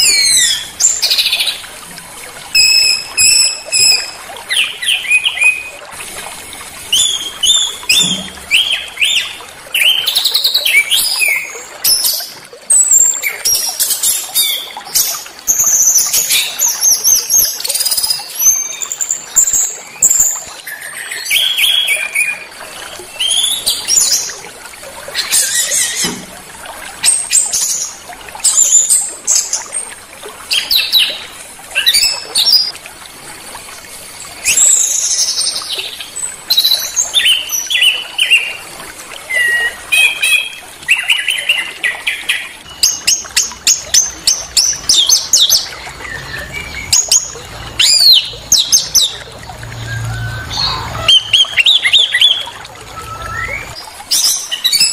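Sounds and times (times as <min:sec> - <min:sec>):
songbirds chirping and trilling: 0:39.3 - 0:54.9.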